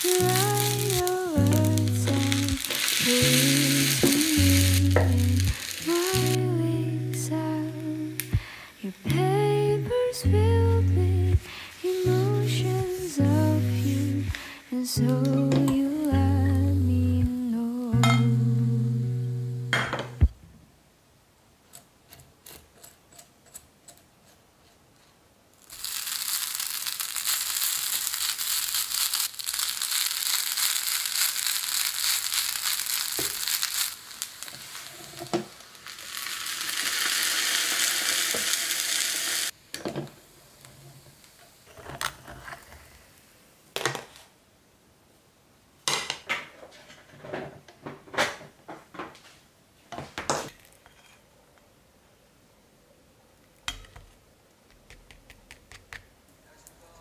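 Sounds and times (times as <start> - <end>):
rice sizzling on hot plate: 0.0 - 10.2, 11.3 - 18.3, 25.6 - 43.4.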